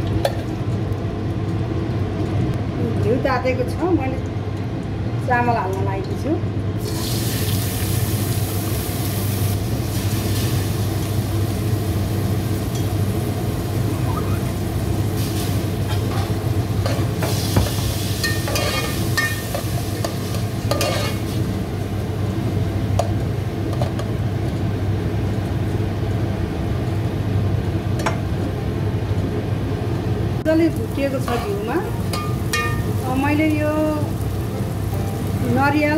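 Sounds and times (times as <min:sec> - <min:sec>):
rice sizzling in a pan: 0:06.8 - 0:26.3, 0:30.4 - 0:35.9
spoon scraping a pot: 0:20.8 - 0:21.2.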